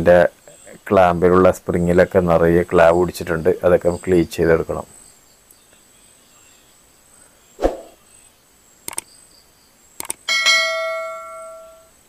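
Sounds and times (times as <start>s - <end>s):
mouse clicks: 8.9s - 9.1s, 10.0s - 10.2s.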